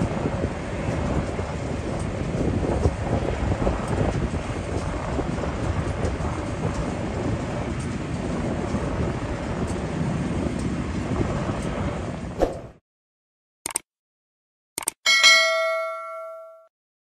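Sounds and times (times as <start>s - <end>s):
jet engines low rumble: 0.0s - 12.8s.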